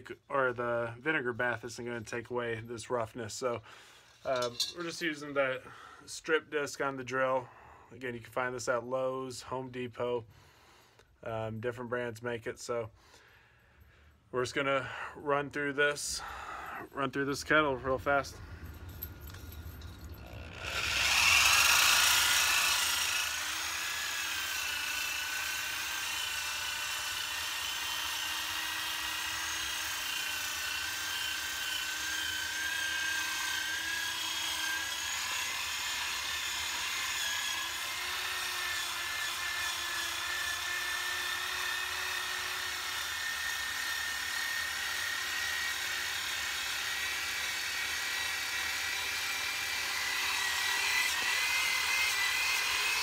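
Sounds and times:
disc grinding on iron: 0:04.2 - 0:05.1, 0:18.8 - 0:39.7
electric drill motor whine: 0:19.1 - 0:53.0.

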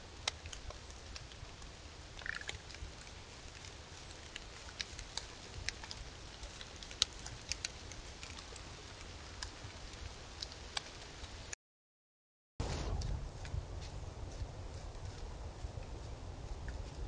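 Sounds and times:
light ticks and patters: 0:00.0 - 0:11.6, 0:12.9 - 0:17.0
low rumble: 0:12.6 - 0:17.0.

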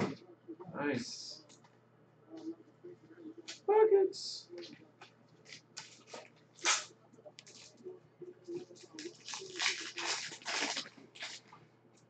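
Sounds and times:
foil wrapper crinkling: 0:05.5 - 0:07.8, 0:08.7 - 0:11.6
foil being torn open: 0:05.8 - 0:06.9, 0:09.0 - 0:11.4.

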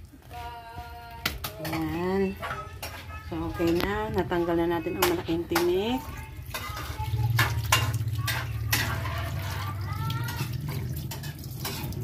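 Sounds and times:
water splashing in a steel sink: 0:05.0 - 0:12.0.

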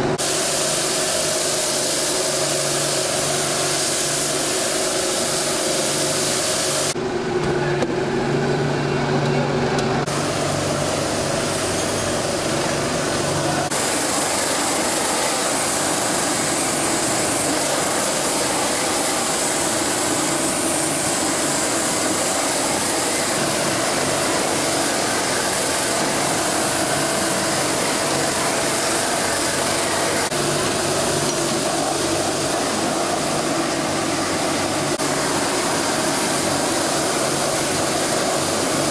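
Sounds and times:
blowtorch hissing: 0:00.2 - 0:07.0, 0:10.1 - 0:38.9
motor humming: 0:06.9 - 0:38.9.

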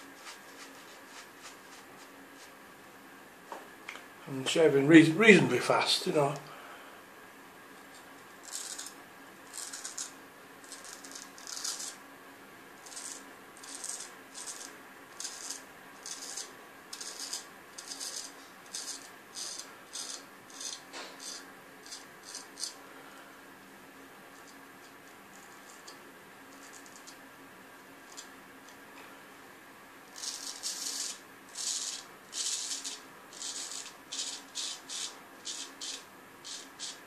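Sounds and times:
razor scraping beard stubble: 0:08.4 - 0:12.0, 0:12.8 - 0:22.8, 0:30.2 - 0:37.0.

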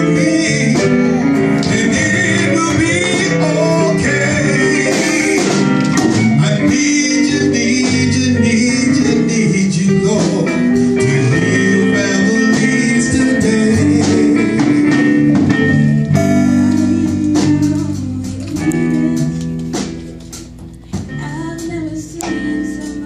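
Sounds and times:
live band with guitar: 0:00.0 - 0:23.0
woman singing into microphone: 0:16.4 - 0:20.1, 0:20.8 - 0:23.0.

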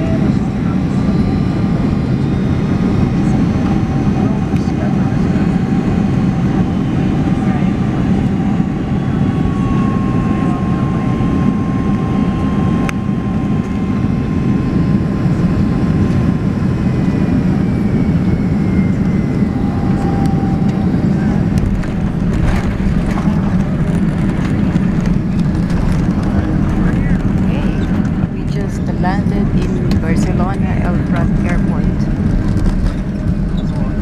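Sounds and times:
faint engine whine: 0:00.0 - 0:34.0
jet engine and airflow roar: 0:00.0 - 0:34.0.

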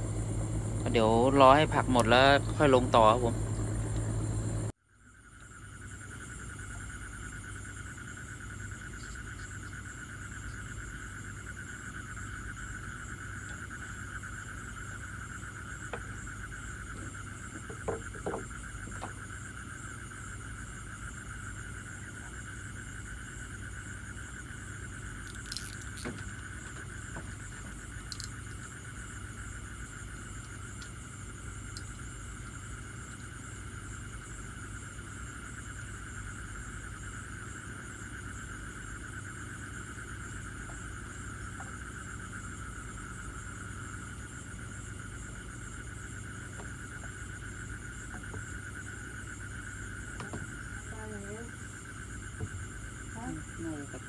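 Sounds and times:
low hum: 0:00.0 - 0:04.8.

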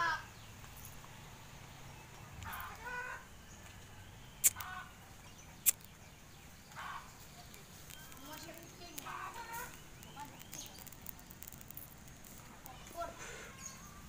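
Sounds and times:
faint animal calls: 0:02.4 - 0:03.4
sharp clicks: 0:04.4 - 0:04.7, 0:05.6 - 0:06.0, 0:07.4 - 0:13.0.

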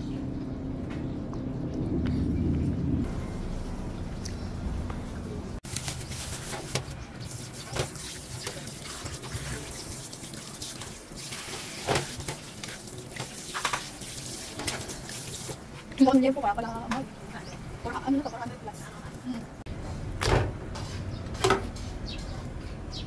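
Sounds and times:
tap water running and splashing: 0:06.6 - 0:15.6.

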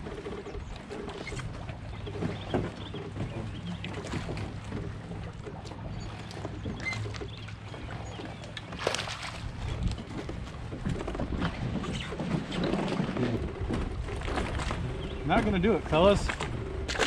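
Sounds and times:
water sloshing against hull: 0:00.0 - 0:17.0.

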